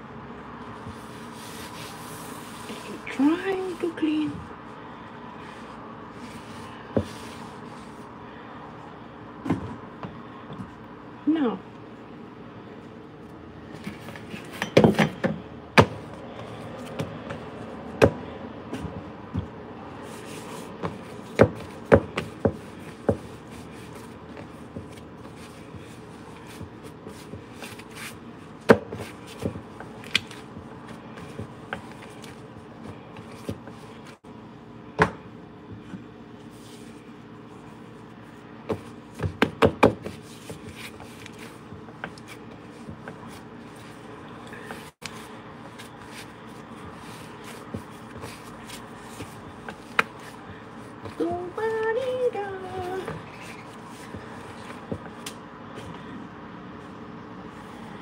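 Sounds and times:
dough kneading knocks and thumps: 0:09.4 - 0:10.8, 0:13.8 - 0:34.3, 0:34.9 - 0:36.1, 0:38.6 - 0:51.3, 0:52.6 - 0:56.1.

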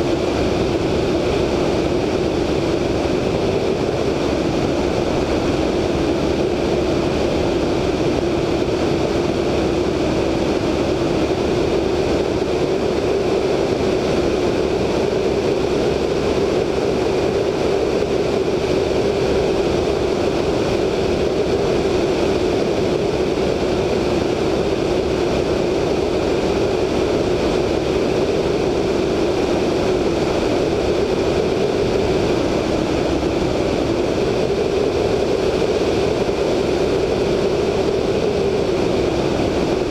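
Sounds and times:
radial engine droning: 0:00.0 - 0:39.9
rush of air over microphone: 0:00.0 - 0:39.9.

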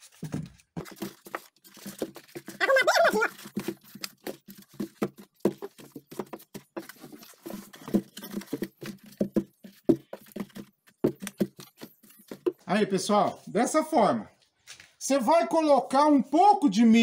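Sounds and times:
corn ears tapping together: 0:00.0 - 0:12.8
corn husks rustling: 0:00.0 - 0:13.6.

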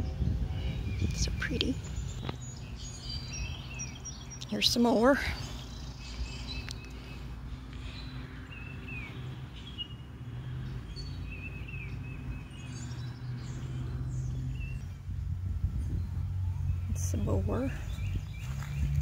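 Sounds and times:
bird chirps: 0:00.6 - 0:15.0.

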